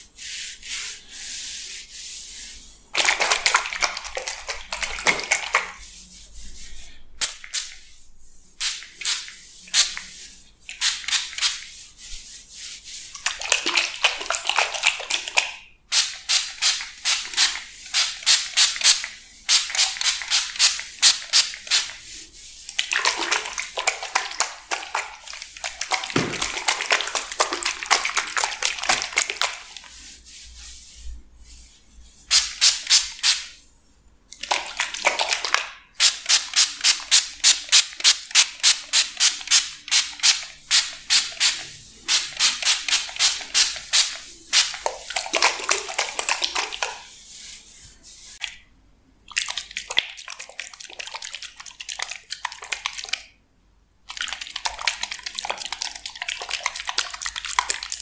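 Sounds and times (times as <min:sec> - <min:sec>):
spray bottle squirts: 0:08.6 - 0:11.6, 0:25.6 - 0:27.7, 0:32.3 - 0:33.6, 0:36.0 - 0:47.0.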